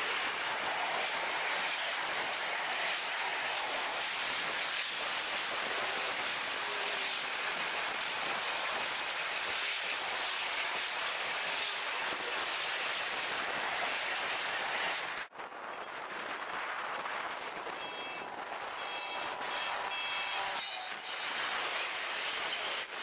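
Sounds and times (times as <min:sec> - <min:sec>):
sped-up train high hiss: 0:00.0 - 0:23.0.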